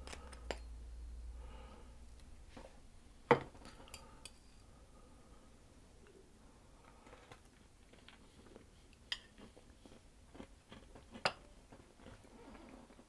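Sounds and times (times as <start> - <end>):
faint chewing of pastry: 6.7 - 13.0.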